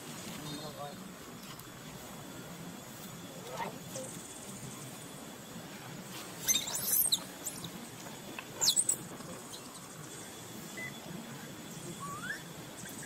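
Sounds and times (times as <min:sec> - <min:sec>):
young monkey squealing: 0:06.4 - 0:07.7, 0:08.6 - 0:09.8, 0:12.0 - 0:13.0.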